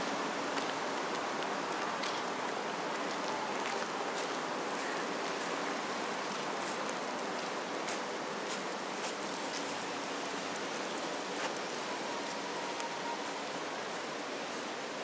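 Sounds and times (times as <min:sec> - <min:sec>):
small high ticks: 0:06.3 - 0:14.7.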